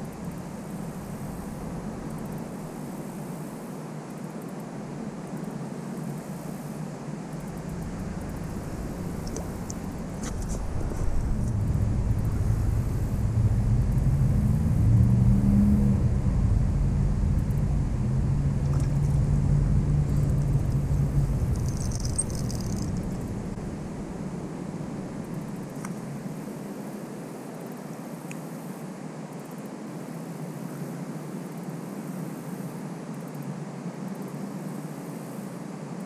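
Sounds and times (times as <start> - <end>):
vehicle engine passing by: 8.6 - 24.0.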